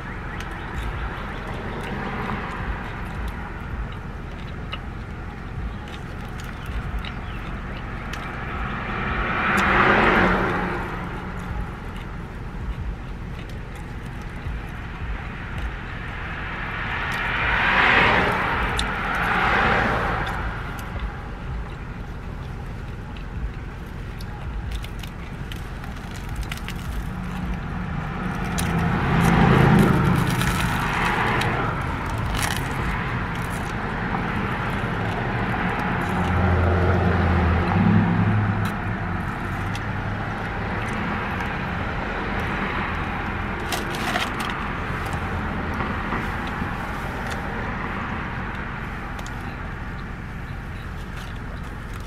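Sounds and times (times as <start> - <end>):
chewing crusty bread: 0.0 - 52.0
road traffic noise: 0.0 - 52.0
bread crust crackling: 17.0 - 37.6.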